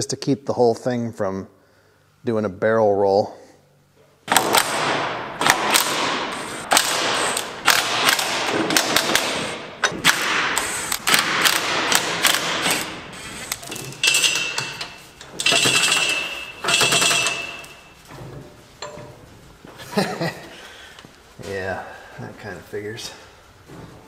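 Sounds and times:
impact wrench rattling: 5.4s - 19.2s.

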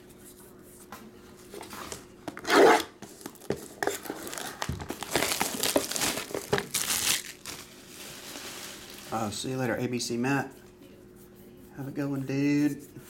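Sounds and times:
plastic wrap crinkling: 3.1s - 9.6s
plastic wrap ripping: 3.2s - 9.4s.

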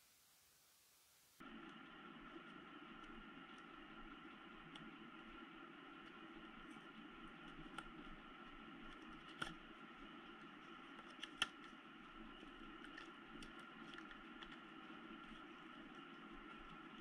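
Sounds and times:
steady low hum: 0.0s - 17.0s
plastic packaging clicks and crinkles: 8.8s - 17.0s.

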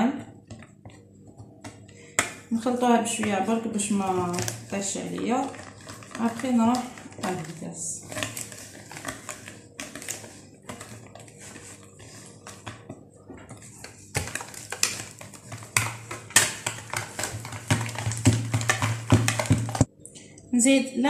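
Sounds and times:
whisk clicking against plastic bowl: 14.2s - 19.9s.

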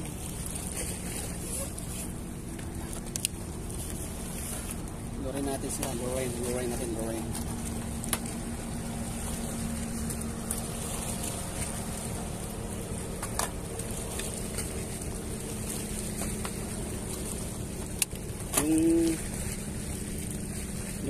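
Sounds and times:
motorboat engine humming: 0.0s - 21.0s
water noise: 0.0s - 21.0s
wind: 0.0s - 21.0s.

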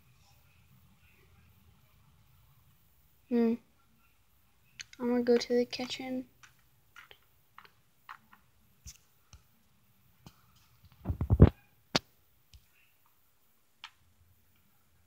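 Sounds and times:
plastic toy clicks and taps: 4.8s - 8.4s.

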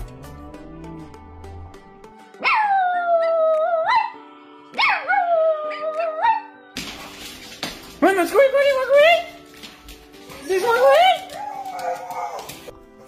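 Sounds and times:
background music: 0.0s - 13.0s
dog howling: 10.3s - 12.7s.

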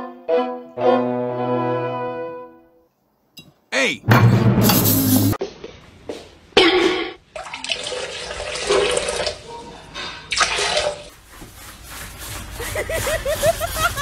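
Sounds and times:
water splashing in toilet bowl: 7.3s - 9.4s, 10.3s - 11.1s.

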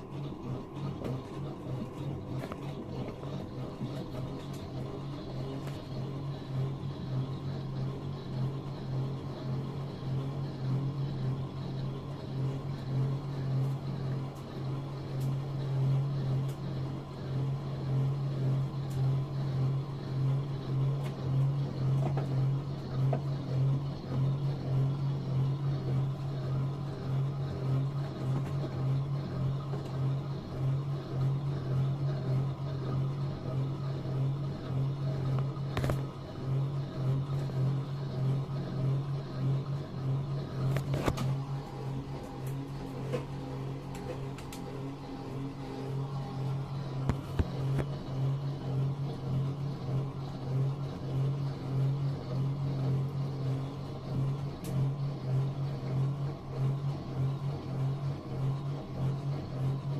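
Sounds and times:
washing machine motor hum: 0.0s - 59.9s
click: 43.9s - 44.7s.

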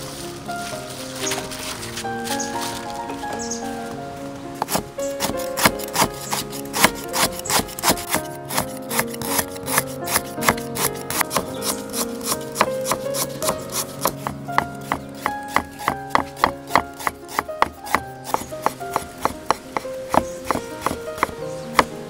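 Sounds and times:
background music: 0.0s - 22.0s
cleaver chopping on wooden block: 4.6s - 21.9s.

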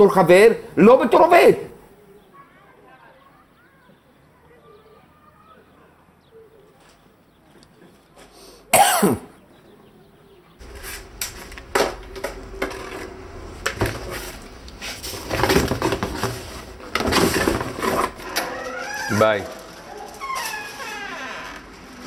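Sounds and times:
person coughing: 8.7s - 9.3s
room noise: 10.6s - 22.0s
rustling of packing: 10.6s - 22.0s
objects knocking in cardboard box: 15.0s - 18.2s.

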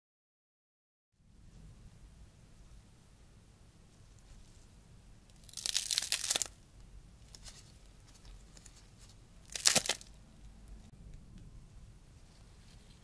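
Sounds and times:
pastry crust crackling: 4.2s - 10.5s.

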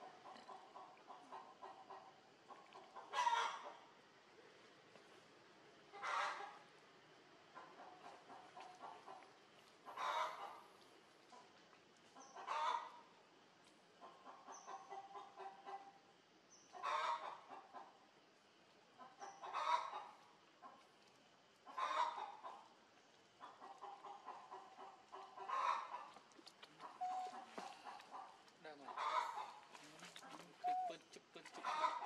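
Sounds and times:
chickens clucking: 0.0s - 3.8s, 5.9s - 6.6s, 7.5s - 10.7s, 12.2s - 13.1s, 14.0s - 16.0s, 16.7s - 18.0s, 19.0s - 20.8s, 21.6s - 32.0s.

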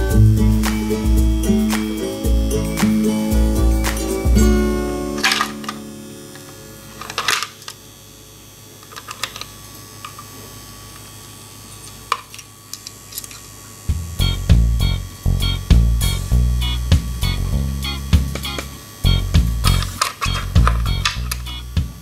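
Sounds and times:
music: 0.0s - 6.1s, 13.9s - 22.0s
low hum: 0.0s - 9.4s, 13.2s - 22.0s
plastic toy parts clicking: 7.0s - 7.8s, 8.8s - 10.3s, 19.7s - 21.6s.

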